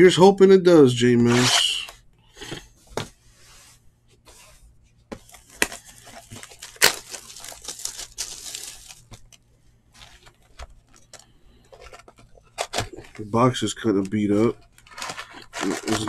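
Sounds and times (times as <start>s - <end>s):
plastic shrink wrap tearing: 5.3s - 9.4s, 14.8s - 16.0s.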